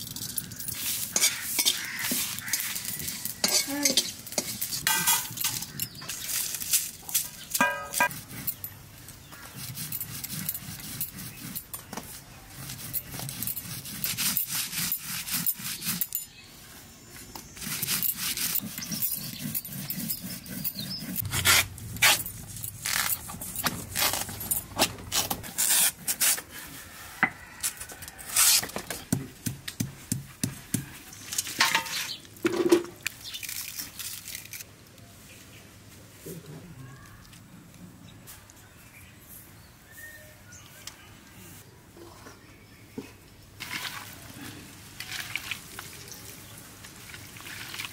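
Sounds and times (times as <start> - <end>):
stone grinding dry chillies: 0.0 - 11.8, 12.5 - 16.4, 17.5 - 24.6
sharp crackles and scrapes: 0.0 - 40.0, 43.1 - 47.9.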